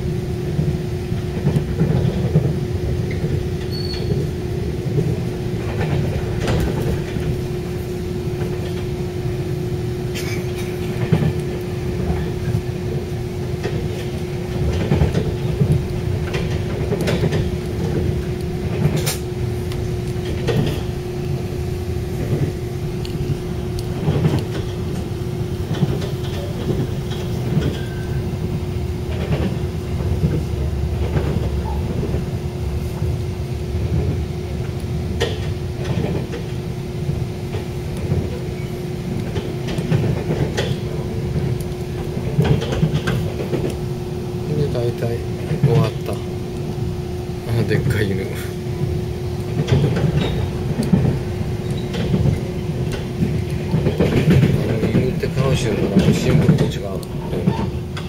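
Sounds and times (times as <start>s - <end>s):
train rumble inside carriage: 0.0s - 58.0s
wheels knocking on track: 0.5s - 7.8s, 10.2s - 21.1s, 22.1s - 32.3s, 33.8s - 36.6s, 39.2s - 43.8s, 49.4s - 58.0s.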